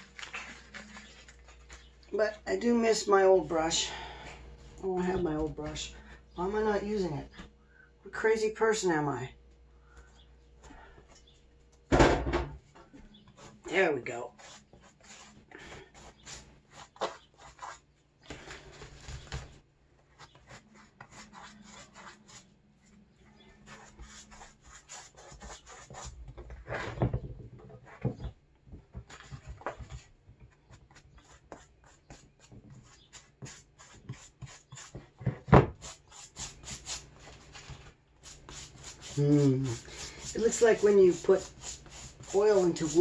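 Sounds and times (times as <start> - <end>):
pastry brush scratching crust: 20.2 - 22.5, 35.8 - 43.0.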